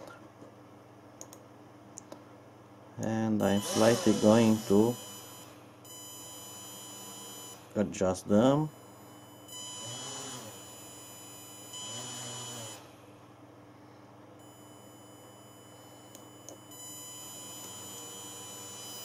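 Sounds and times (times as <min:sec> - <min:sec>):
small drone motors whining: 0:03.5 - 0:05.1, 0:09.8 - 0:10.6, 0:11.8 - 0:12.9.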